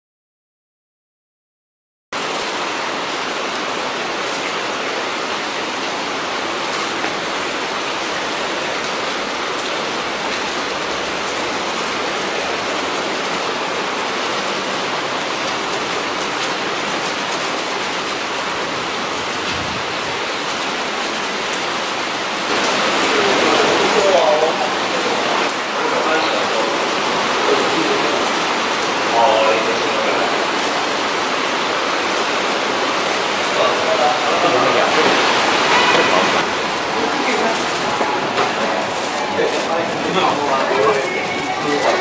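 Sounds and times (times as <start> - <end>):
heavy rain on pavement: 2.2 - 42.0.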